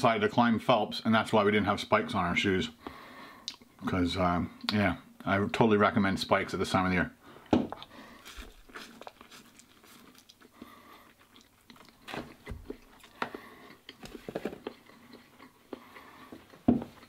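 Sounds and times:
man chewing noodles: 0:07.3 - 0:17.0.

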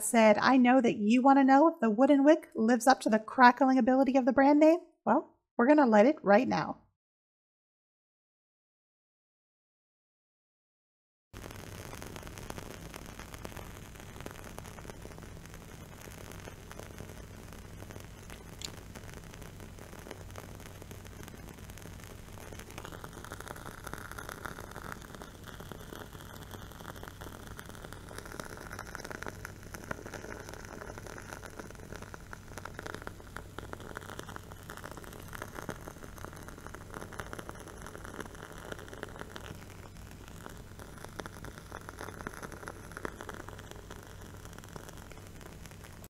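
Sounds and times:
wooden candle wick crackling: 0:11.4 - 0:46.0.

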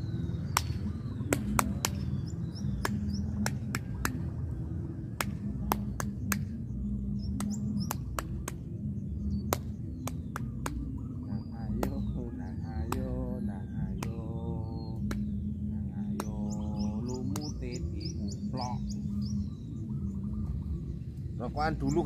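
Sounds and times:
birds chirping: 0:00.0 - 0:22.0
steady low hum: 0:00.0 - 0:22.0.

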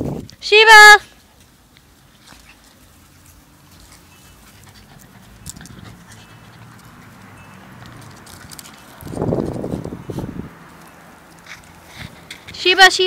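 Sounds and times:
puppy panting: 0:01.1 - 0:08.7.

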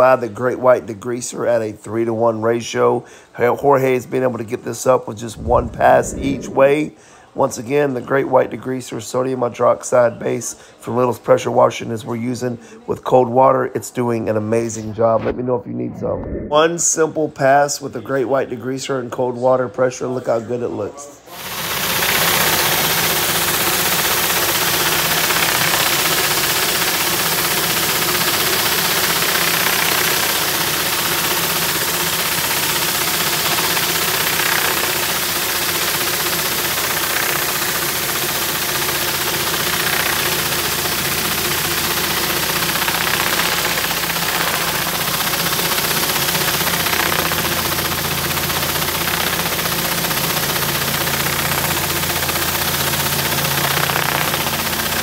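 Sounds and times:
engine drone: 0:05.3 - 0:06.9, 0:15.2 - 0:16.6, 0:21.4 - 0:55.0
pressure washer jets hissing: 0:21.3 - 0:55.0.

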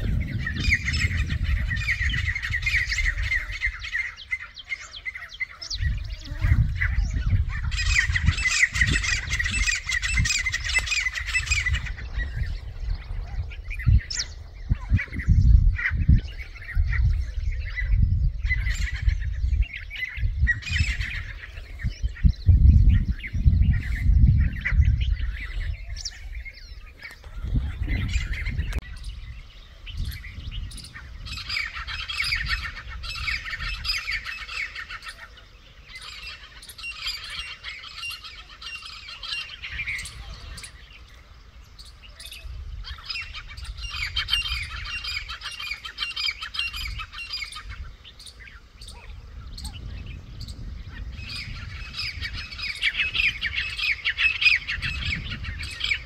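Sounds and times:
low rumbles on microphone: 0:00.0 - 0:04.1, 0:05.6 - 0:34.1, 0:48.9 - 0:53.8
francolins squawking: 0:00.0 - 0:56.0.

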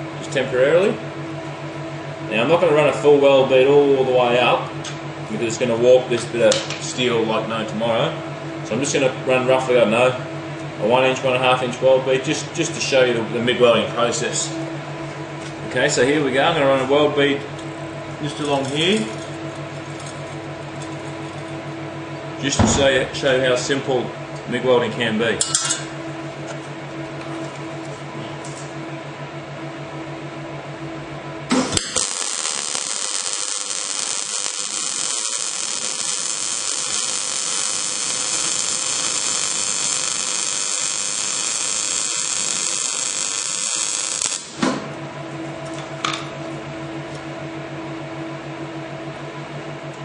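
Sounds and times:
welder hum: 0:30.9 - 0:47.2
welding arc hiss: 0:31.5 - 0:44.6.

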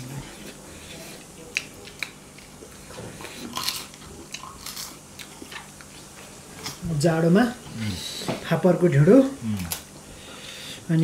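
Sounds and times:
soft chewing: 0:00.0 - 0:06.8.

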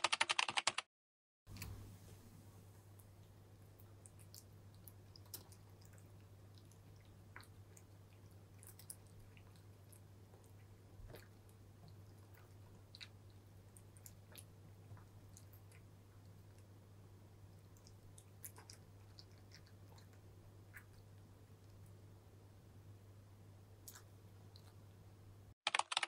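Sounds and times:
cat chewing dry kibble: 0:03.8 - 0:16.7, 0:17.5 - 0:21.8.

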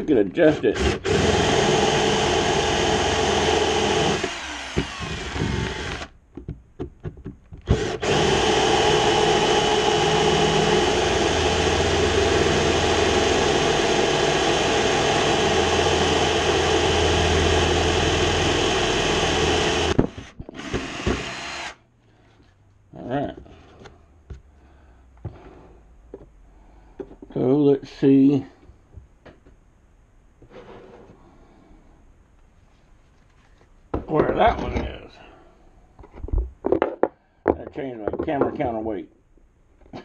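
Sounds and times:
power drill boring into wood: 0:00.8 - 0:06.2, 0:07.6 - 0:21.8.

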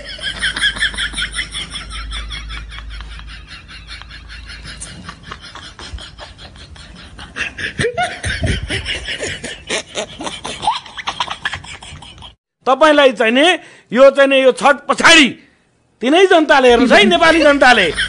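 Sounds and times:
man laughing hard: 0:00.0 - 0:12.4.

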